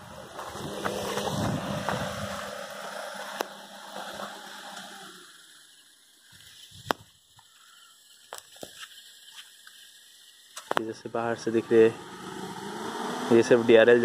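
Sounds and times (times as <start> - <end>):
car engine and fan humming: 0.0 - 6.2, 10.6 - 14.0.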